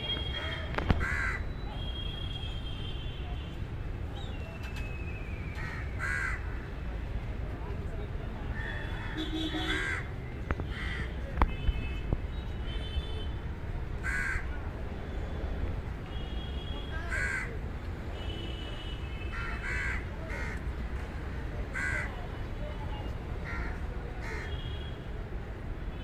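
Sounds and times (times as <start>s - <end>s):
crows cawing: 1.0s - 1.4s, 5.6s - 6.6s, 8.6s - 10.1s, 10.7s - 11.1s, 14.0s - 14.5s, 17.1s - 17.6s, 19.3s - 20.6s, 21.7s - 22.1s, 23.4s - 24.6s.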